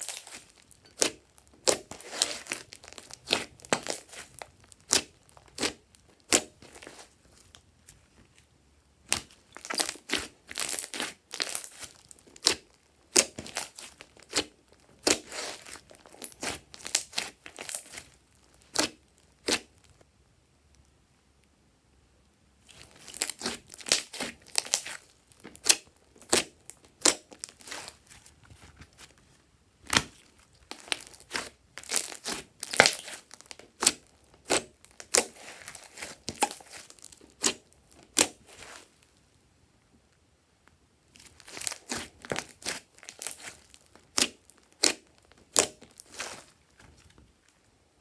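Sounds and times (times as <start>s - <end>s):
hands kneading slime: 0.0s - 19.9s, 22.6s - 39.1s, 41.0s - 47.1s.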